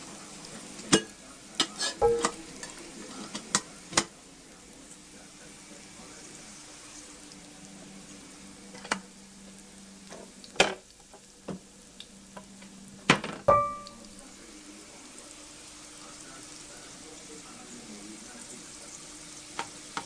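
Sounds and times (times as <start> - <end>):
onions sizzling in oil: 0.0 - 20.0
metal ladle knocking on pot: 2.0 - 2.4, 13.5 - 14.0.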